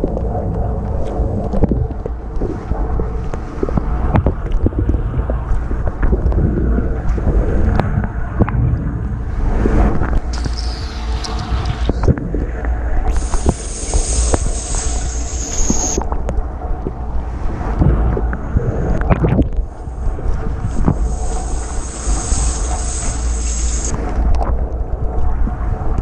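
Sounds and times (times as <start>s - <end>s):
steady high hiss: 10.3s - 12.1s, 13.0s - 16.0s, 19.7s - 24.2s
water spray splashing: 13.1s - 16.0s, 20.7s - 24.0s.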